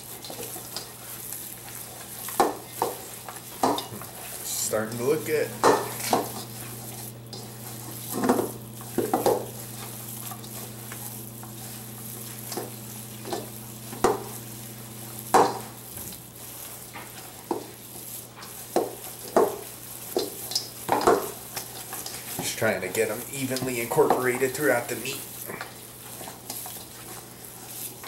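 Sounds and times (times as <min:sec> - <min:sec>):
low hum: 0:03.9 - 0:15.9.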